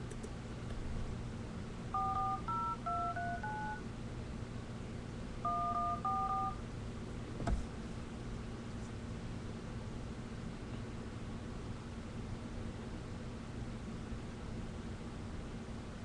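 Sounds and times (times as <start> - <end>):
touch-tone keypad beeps: 2.0 - 3.8, 5.4 - 6.6.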